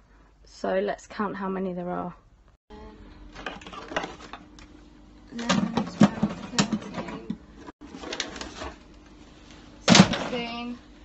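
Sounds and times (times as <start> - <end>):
plastic bottles clattering: 3.3 - 4.4, 5.4 - 8.8, 9.8 - 10.6.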